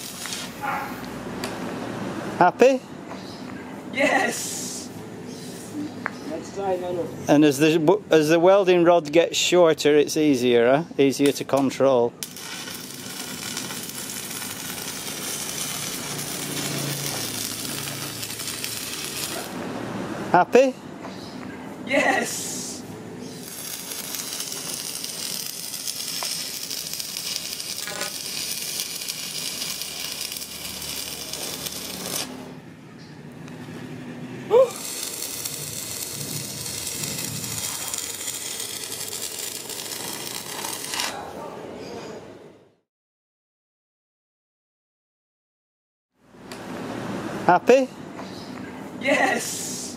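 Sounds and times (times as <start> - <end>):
welding arc crackling: 0.0 - 1.6, 11.1 - 19.8, 21.9 - 32.6, 34.4 - 41.3.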